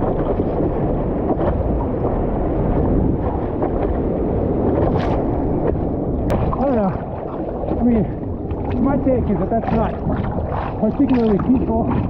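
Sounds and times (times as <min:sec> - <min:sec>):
surf rumble: 0:00.0 - 0:12.0
water splashing against surfboard: 0:00.0 - 0:12.0
wind: 0:00.0 - 0:12.0.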